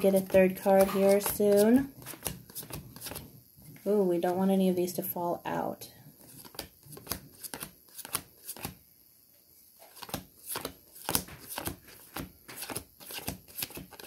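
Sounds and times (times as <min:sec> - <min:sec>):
cards being shuffled: 0:00.0 - 0:03.3, 0:06.2 - 0:08.8, 0:09.8 - 0:14.0.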